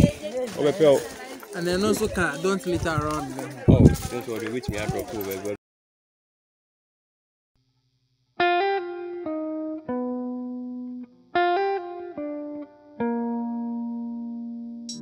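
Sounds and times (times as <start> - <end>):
plucked guitar melody: 8.4 - 15.0.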